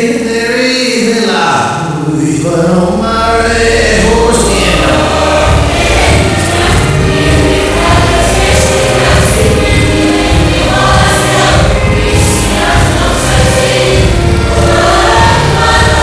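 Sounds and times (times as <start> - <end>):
choir singing: 3.7 - 16.0
heavy pulsing beat: 3.8 - 16.0.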